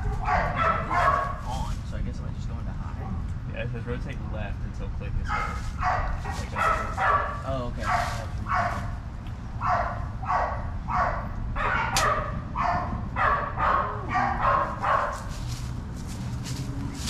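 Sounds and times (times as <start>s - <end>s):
dog barking: 0.0s - 1.5s, 5.3s - 9.0s, 9.6s - 15.3s.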